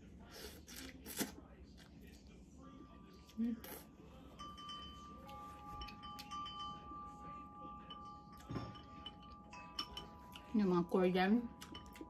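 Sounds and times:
high chime-like tones: 0:04.3 - 0:10.5.

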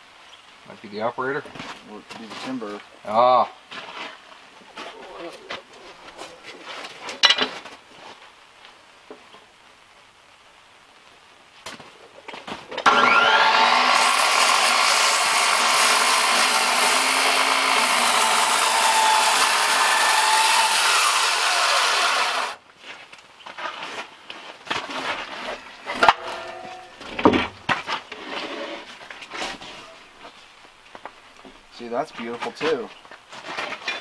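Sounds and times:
circular saw cutting timber: 0:12.8 - 0:22.6.

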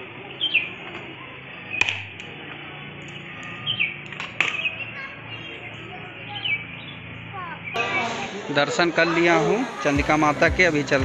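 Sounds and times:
bird chirping: 0:00.2 - 0:01.9, 0:02.7 - 0:08.1.

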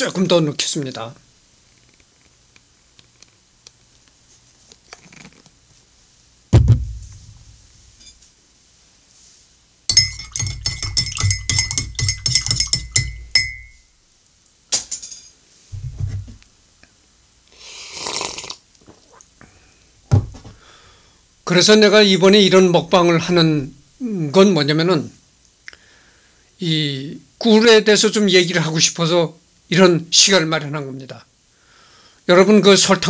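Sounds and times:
person sipping coffee: 0:05.0 - 0:05.4, 0:17.5 - 0:19.4
dull knock: 0:06.6 - 0:07.1, 0:20.1 - 0:20.5
spoon clinking in mug: 0:09.9 - 0:13.8.

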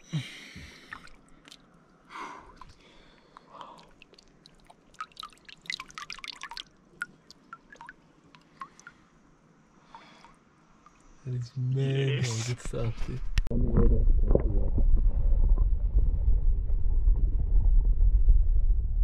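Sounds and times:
water dripping and trickling: 0:00.8 - 0:01.9, 0:02.5 - 0:09.1.

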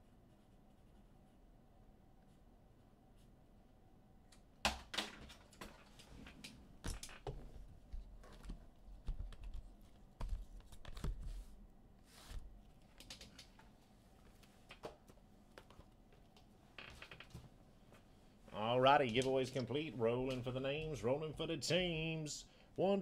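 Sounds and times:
typing on a computer keyboard: 0:12.9 - 0:13.6.

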